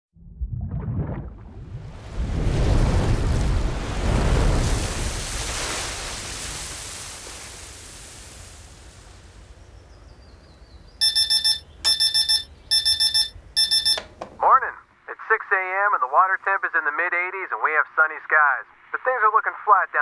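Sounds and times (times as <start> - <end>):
clock radio alarm beeps: 11.0 - 14.1.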